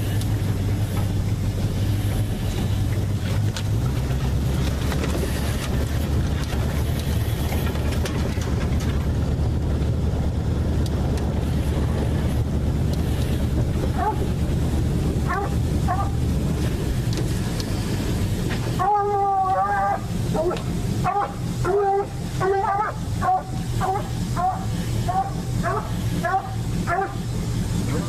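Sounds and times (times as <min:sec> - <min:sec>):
swamp buggy engine running: 0:00.0 - 0:28.0
clicks and rattles: 0:02.9 - 0:09.9.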